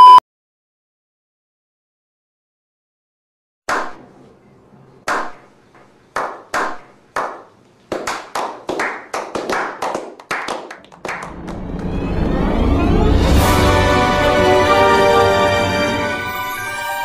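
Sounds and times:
men slow clapping: 6.2 - 12.2.

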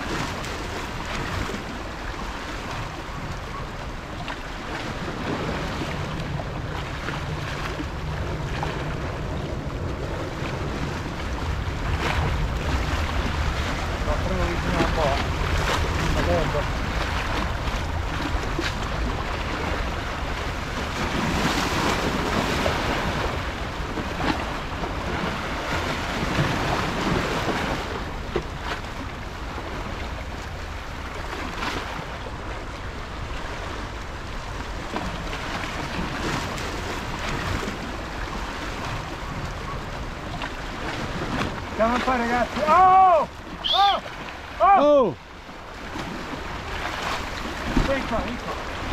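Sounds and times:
waves splashing over rocks: 0.0 - 48.9.

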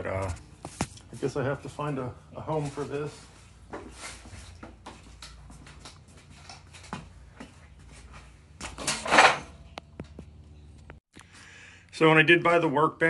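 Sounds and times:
objects clattering on metal bench: 8.6 - 10.2.

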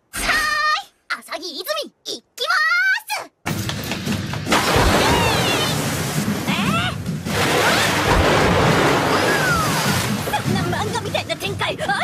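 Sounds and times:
music: 3.4 - 12.0
splashing water: 4.5 - 11.3.

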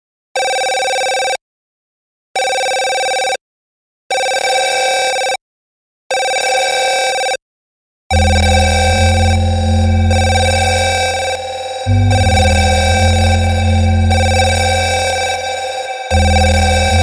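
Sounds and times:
heavy bass music: 8.1 - 17.0.

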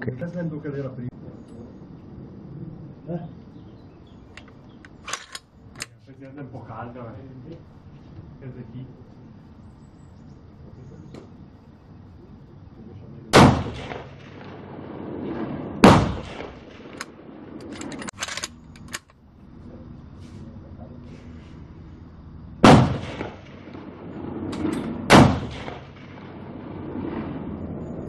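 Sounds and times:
rifle bolt clicks: 4.3 - 6.0, 16.9 - 19.2
rifle shots with echo: 4.4 - 5.9, 13.3 - 19.1, 22.6 - 28.0.

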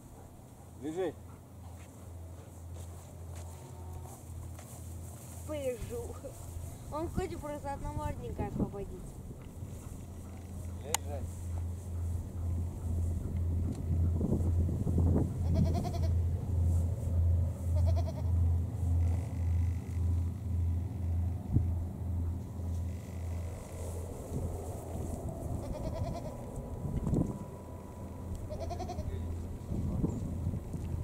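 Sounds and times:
low pulsing throb: 6.5 - 25.7
goats bleating: 15.4 - 16.1, 17.8 - 18.3, 25.6 - 26.4, 28.5 - 29.1.

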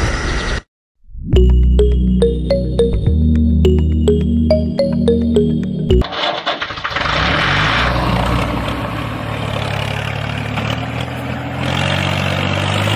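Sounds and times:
plucked synth notes: 1.3 - 6.1
tractor engine starting and running: 5.9 - 12.9.

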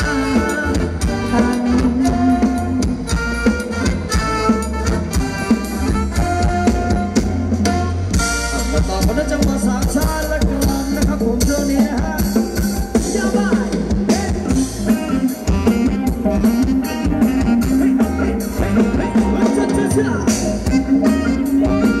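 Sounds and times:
dance band playing instrumental: 0.0 - 22.0.

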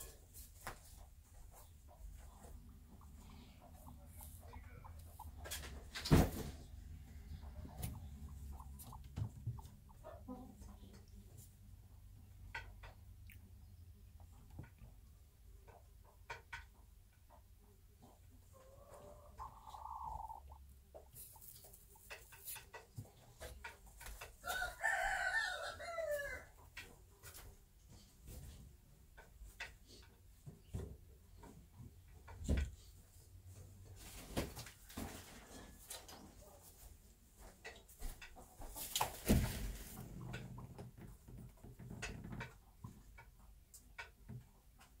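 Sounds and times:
hen rustling in nest: 0.0 - 10.0, 19.4 - 25.3, 38.7 - 40.4
chicken calling: 18.6 - 20.6.

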